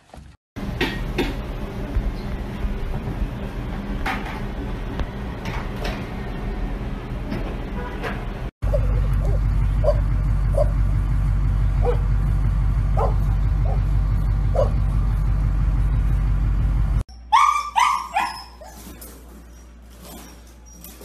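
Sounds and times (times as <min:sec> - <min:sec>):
low rumble: 0:08.6 - 0:17.0
dog yelping: 0:08.7 - 0:10.7, 0:11.8 - 0:12.0, 0:13.0 - 0:13.9, 0:14.5 - 0:14.8, 0:17.1 - 0:21.0.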